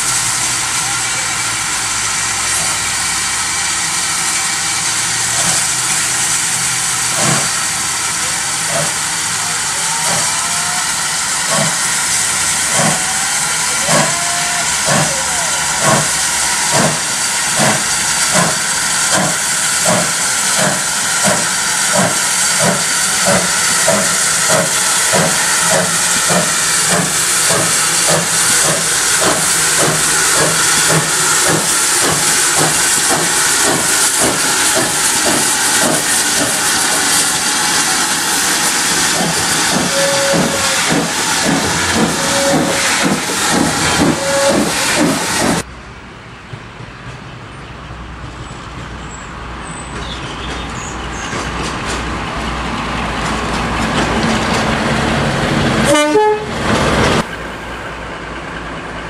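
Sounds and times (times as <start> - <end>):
steady steam hiss: 0.0 - 45.7
steam locomotive chuffing: 0.0 - 45.7, 46.4 - 59.0.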